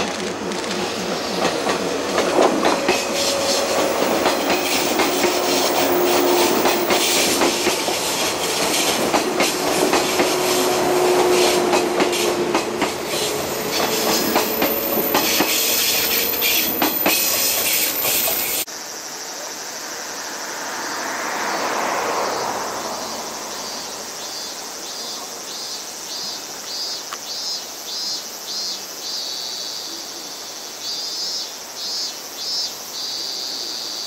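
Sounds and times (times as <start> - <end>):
train wheels rolling on rail: 0.0 - 18.7
wheels clicking over rail joints: 0.0 - 18.7.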